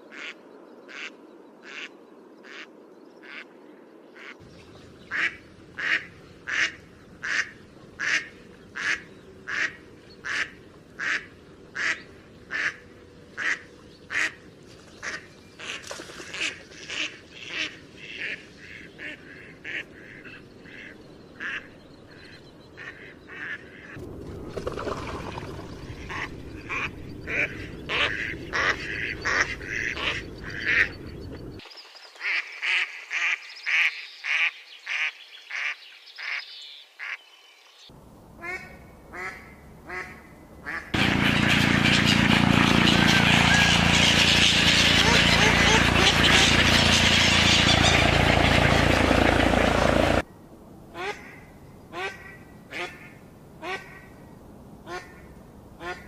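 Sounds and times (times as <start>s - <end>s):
ducks quacking: 0.1s - 1.9s, 5.1s - 14.4s, 15.0s - 24.0s, 25.9s - 31.3s, 38.4s - 50.2s.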